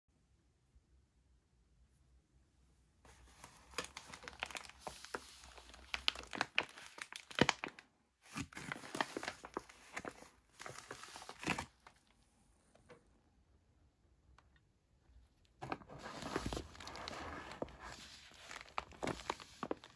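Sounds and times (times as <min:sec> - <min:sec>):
plastic bag crinkling: 0:03.1 - 0:12.1, 0:15.6 - 0:19.9.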